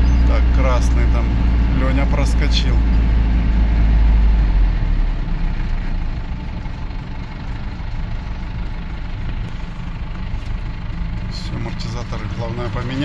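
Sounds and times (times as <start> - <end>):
vehicle engine low rumble: 0.0 - 13.0.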